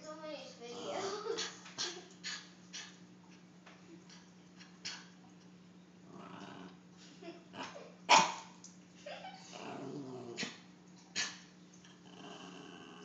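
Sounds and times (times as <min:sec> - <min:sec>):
dog growling: 0:00.6 - 0:02.0, 0:06.0 - 0:06.9, 0:07.5 - 0:07.9, 0:09.4 - 0:13.0
dog barking: 0:08.1 - 0:08.5.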